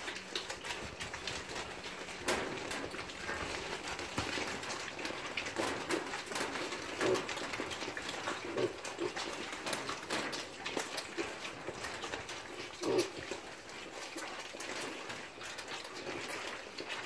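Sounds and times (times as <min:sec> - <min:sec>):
rustling: 0:00.0 - 0:13.2
piglets grunting: 0:01.4 - 0:09.6, 0:12.4 - 0:13.5.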